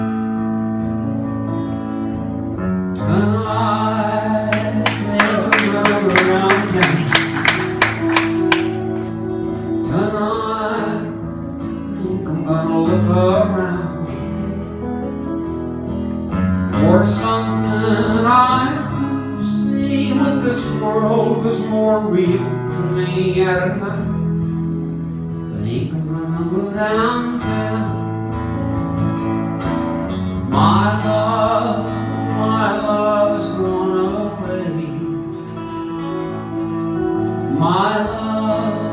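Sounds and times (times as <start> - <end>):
strummed acoustic guitars: 0.0 - 38.9
men singing: 3.0 - 7.2, 16.8 - 23.6.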